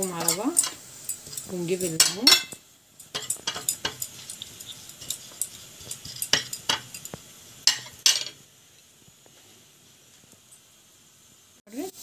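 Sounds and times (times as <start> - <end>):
metal spoon scraping a plate: 2.3 - 7.9.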